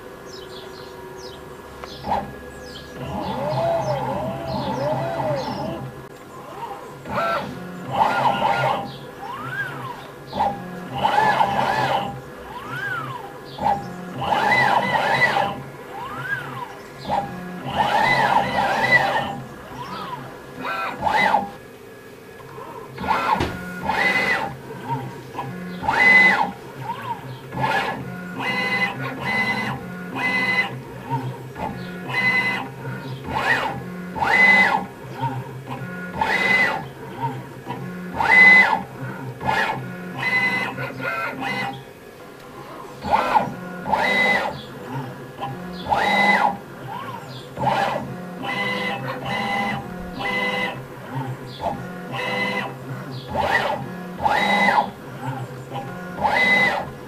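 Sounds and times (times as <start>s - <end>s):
stepper motor whine: 0.0s - 57.0s.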